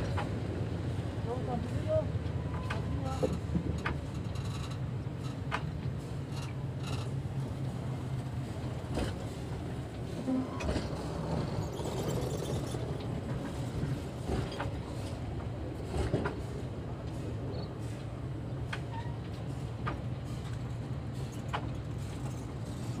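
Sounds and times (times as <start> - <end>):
train coaches rumbling: 0.0 - 23.0
wheels clicking over rail joint: 2.2 - 7.6.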